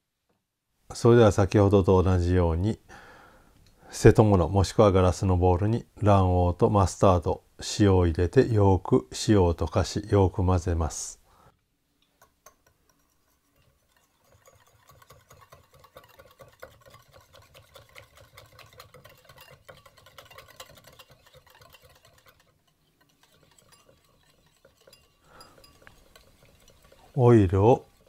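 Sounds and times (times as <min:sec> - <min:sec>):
whisk ticking against bowl: 0:12.1 - 0:28.0.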